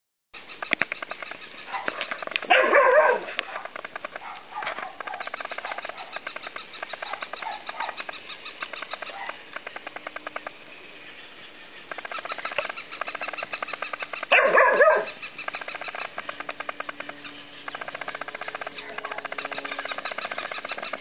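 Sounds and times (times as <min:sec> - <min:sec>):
toy dog bark: 0:01.7 - 0:06.1, 0:09.1 - 0:09.4, 0:14.3 - 0:15.2.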